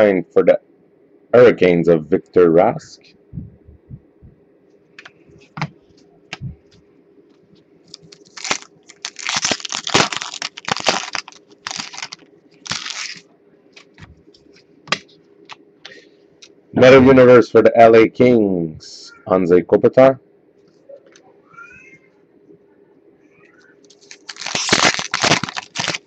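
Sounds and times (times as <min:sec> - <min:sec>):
foil wrapper tearing and crinkling: 0:07.9 - 0:13.3, 0:23.9 - 0:26.0.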